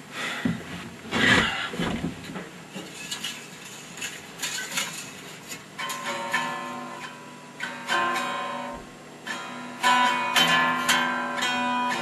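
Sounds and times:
electric guitar strumming chords: 0:05.8 - 0:12.0.

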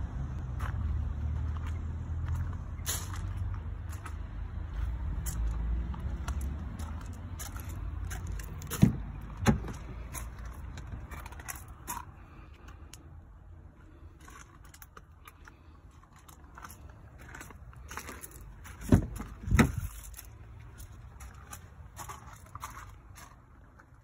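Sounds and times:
car door thumps: 0:08.8 - 0:09.9, 0:18.9 - 0:19.8.

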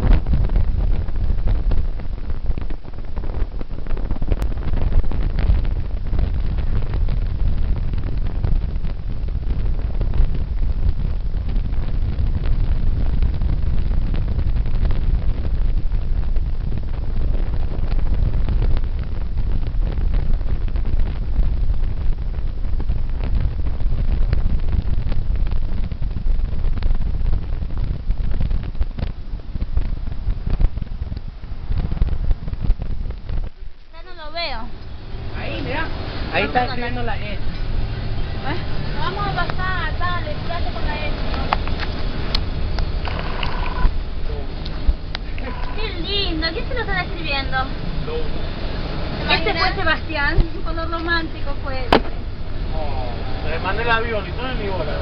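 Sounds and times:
small crackles: 0:00.0 - 0:35.0, 0:39.3 - 0:48.2
wind buffeting microphone: 0:00.0 - 0:55.0.

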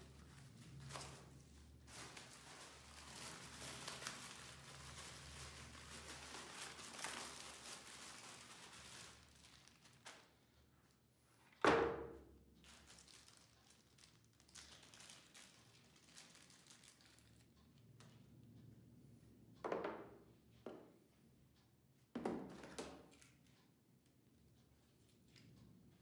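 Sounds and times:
plastic packaging crinkling: 0:00.0 - 0:10.3, 0:12.6 - 0:17.5.

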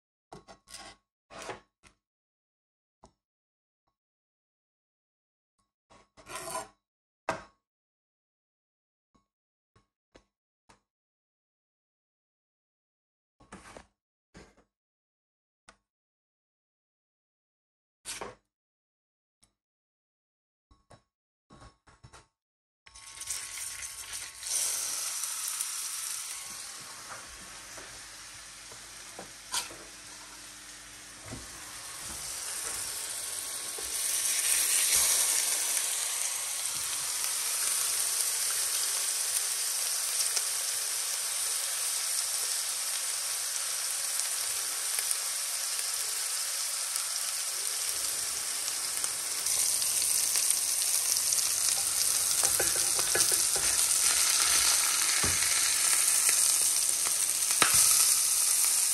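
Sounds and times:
patties sizzling in a frying pan: 0:23.0 - 0:58.9.

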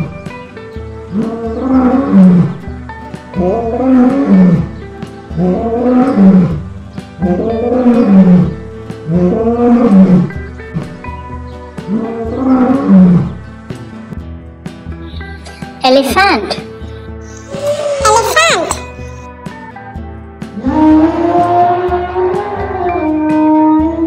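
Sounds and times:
background music: 0:00.0 - 0:24.0
lion roaring: 0:01.1 - 0:02.6, 0:03.4 - 0:04.7, 0:05.4 - 0:06.6, 0:07.2 - 0:10.4, 0:11.9 - 0:13.4.

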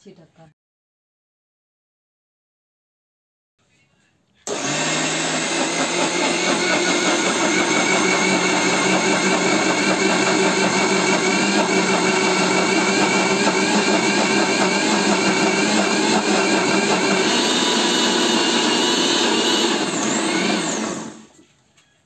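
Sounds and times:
mixer grinder motor whining: 0:04.5 - 0:21.4.

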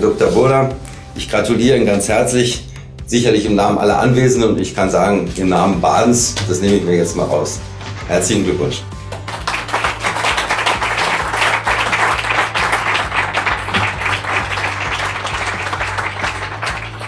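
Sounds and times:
background music: 0:00.0 - 0:17.0
audience applauding: 0:09.1 - 0:17.0.

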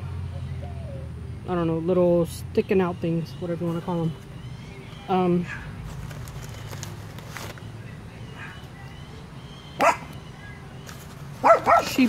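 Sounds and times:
dog barking: 0:09.8 - 0:10.1, 0:11.4 - 0:12.0.

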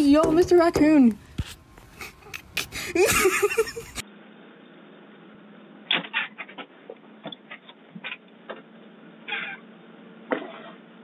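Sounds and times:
clicks knocks and scuffs: 0:00.0 - 0:02.7
steady low hum: 0:00.0 - 0:05.9.

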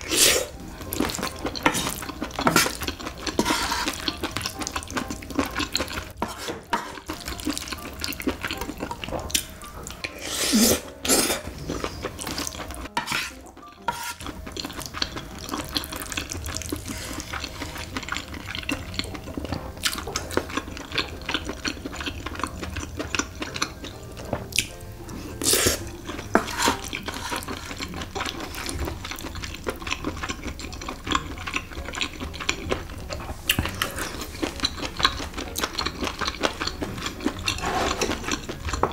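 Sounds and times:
wet chewing and smacking: 0:00.5 - 0:10.2, 0:10.8 - 0:38.9
wooden spoon scraping metal pan: 0:01.1 - 0:04.4, 0:06.1 - 0:07.2, 0:10.1 - 0:14.3, 0:25.5 - 0:27.8, 0:37.5 - 0:38.3.

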